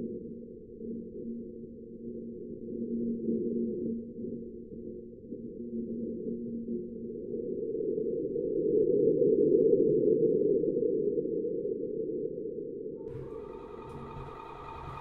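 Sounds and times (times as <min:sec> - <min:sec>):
low muffled rumbling: 0:13.1 - 0:15.0.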